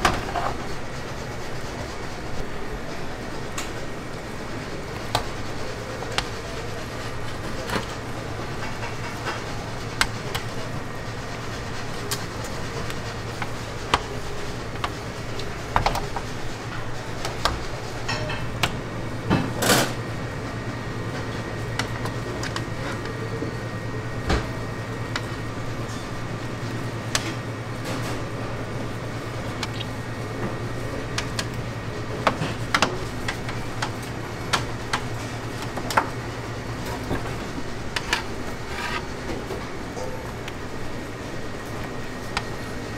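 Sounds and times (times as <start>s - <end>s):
low machine hum: 0.0s - 42.9s.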